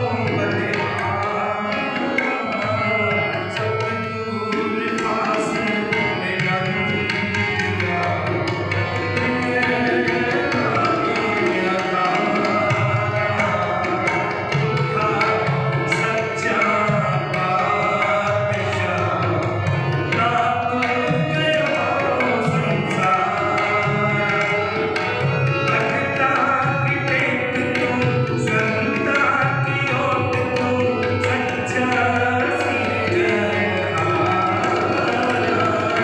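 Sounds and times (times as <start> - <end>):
harmoniums playing: 0.0 - 36.0
tabla rhythm: 0.0 - 36.0
person singing: 25.6 - 36.0.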